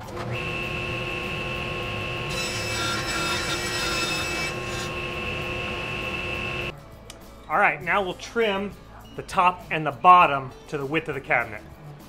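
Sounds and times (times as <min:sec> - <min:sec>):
table saw ripping plywood: 0:00.1 - 0:06.7.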